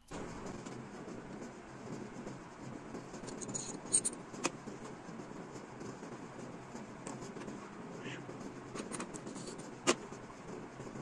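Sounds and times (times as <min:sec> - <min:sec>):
steady background rumble: 0:00.0 - 0:11.0
steel parts clicking and scraping: 0:03.1 - 0:04.5.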